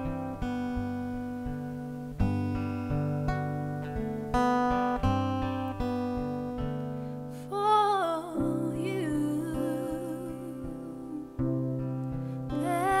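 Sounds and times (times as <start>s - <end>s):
acoustic guitars picking: 0.0s - 13.0s
woman singing: 7.4s - 11.7s, 12.5s - 13.0s.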